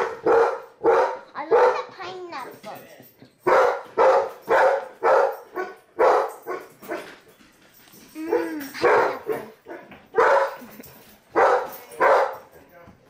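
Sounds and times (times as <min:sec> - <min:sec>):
dog barking: 0:00.0 - 0:02.0, 0:03.4 - 0:07.2, 0:08.2 - 0:12.6.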